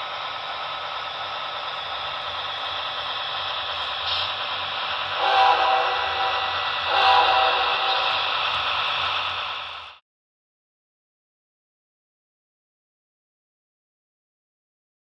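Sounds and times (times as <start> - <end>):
model locomotive engine sound: 0.0 - 10.0
locomotive horn: 5.2 - 8.3.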